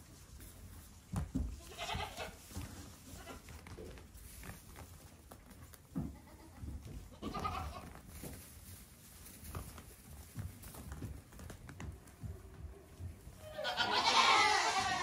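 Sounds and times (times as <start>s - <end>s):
hooves thumping and scuffling: 0.0s - 15.0s
goat kid bleating: 1.6s - 2.4s, 3.0s - 3.5s, 6.0s - 8.0s, 13.4s - 15.0s.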